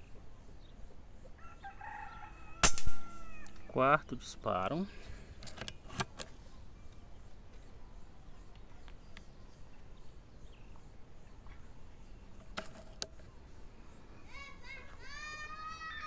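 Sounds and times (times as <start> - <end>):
air rifle metallic clicks: 5.4 - 6.4.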